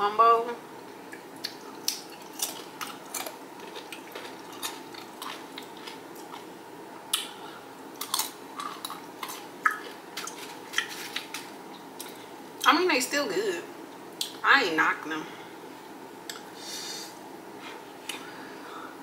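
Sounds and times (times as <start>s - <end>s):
tortilla chips crunching: 1.5s - 6.5s, 8.0s - 12.2s.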